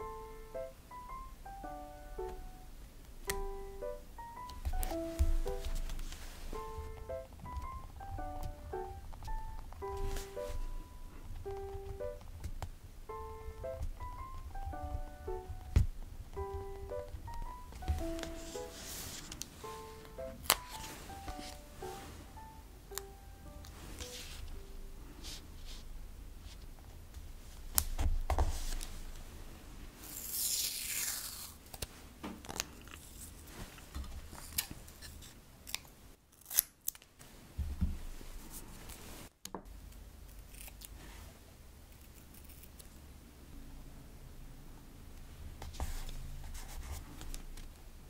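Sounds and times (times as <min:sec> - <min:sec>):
scissors snipping: 0:34.4 - 0:37.1, 0:40.3 - 0:41.0.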